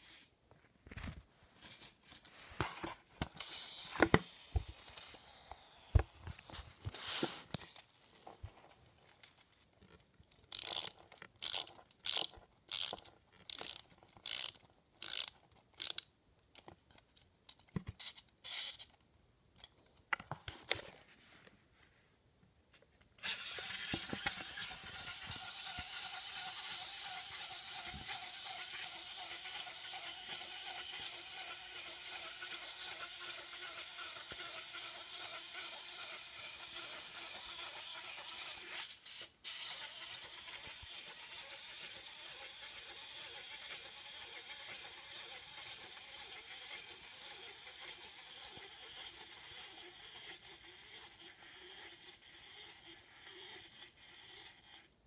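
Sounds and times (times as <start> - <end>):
clockwork toy whirring: 0.0 - 0.3, 3.4 - 8.6, 10.4 - 16.0, 23.2 - 55.0.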